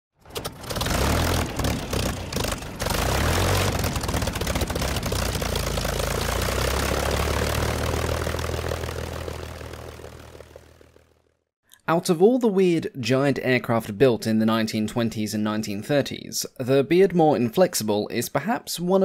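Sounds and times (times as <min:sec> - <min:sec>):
propeller aircraft engine droning: 0:00.2 - 0:11.4.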